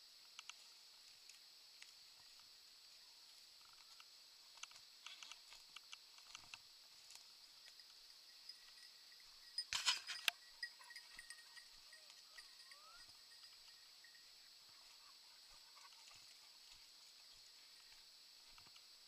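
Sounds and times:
faint metallic jingling: 6.6 - 18.6.

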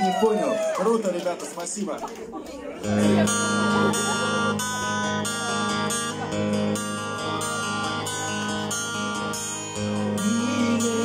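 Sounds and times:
acoustic guitar strumming chords: 2.8 - 11.0
bass notes: 2.8 - 11.0.

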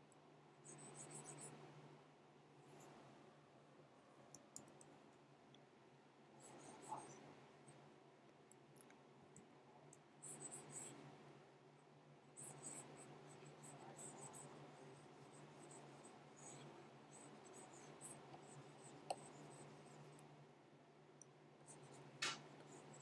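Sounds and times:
faint low hum: 0.0 - 23.0
stylus scratching on tablet: 0.6 - 1.6, 6.4 - 7.2, 10.2 - 11.1, 12.4 - 20.3, 21.6 - 23.0
sharp click: 22.2 - 22.4.

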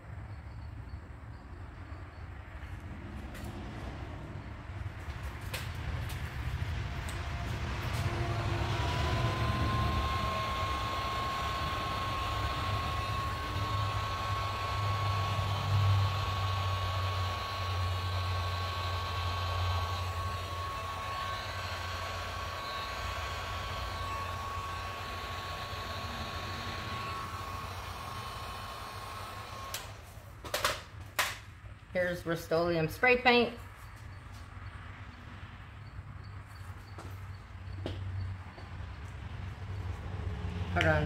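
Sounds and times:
heat gun fan whine: 4.4 - 34.6.

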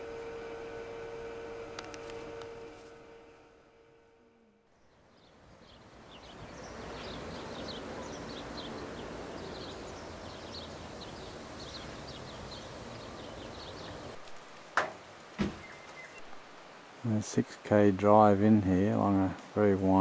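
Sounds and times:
birds chirping: 4.8 - 16.8
steady rushing outdoor background: 5.1 - 17.3.

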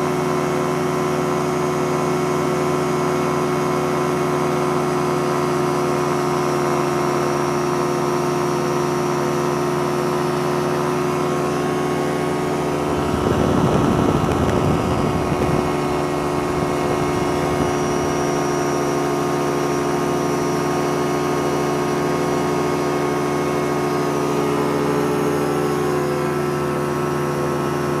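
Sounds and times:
small plane engine droning: 6.8 - 28.0.

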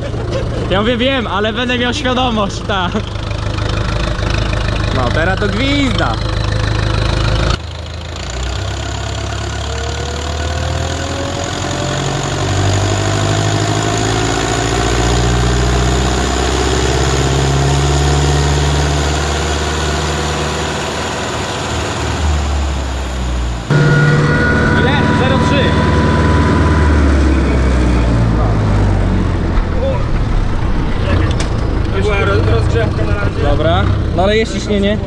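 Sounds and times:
tractor diesel engine under load: 0.0 - 35.0
turbocharger whistling whine: 8.2 - 31.5.

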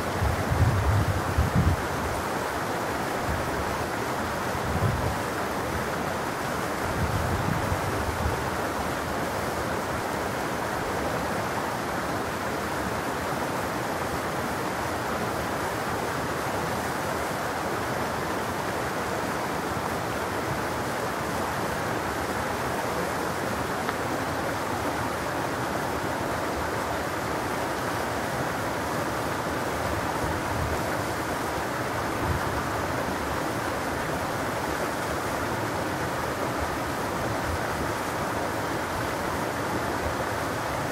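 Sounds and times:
stream running over boulders: 0.0 - 40.9.

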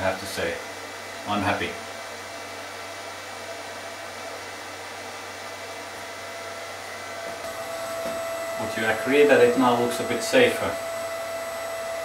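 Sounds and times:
lathe motor whirring: 2.2 - 12.0
faint whining tones: 5.3 - 12.0.

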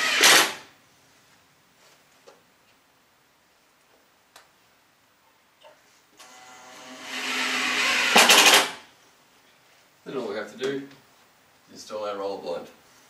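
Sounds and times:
cordless drill driving screw: 0.0 - 0.6, 6.2 - 8.8.

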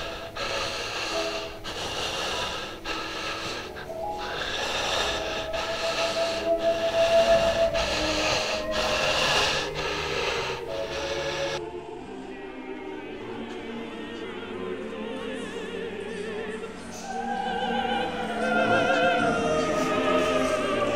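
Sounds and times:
breathy hiss: 0.0 - 11.6
music of long held notes: 0.0 - 20.9.

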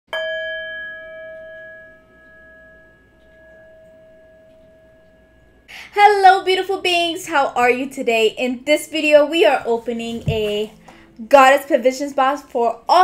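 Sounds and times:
struck bell ringing: 0.1 - 5.7.

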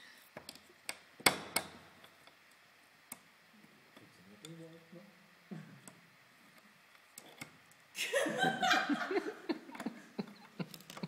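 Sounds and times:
laughter: 8.0 - 11.0.

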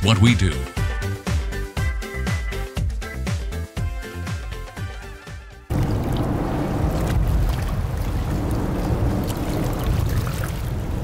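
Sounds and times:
music: 0.0 - 5.7
water noise: 5.7 - 11.0.

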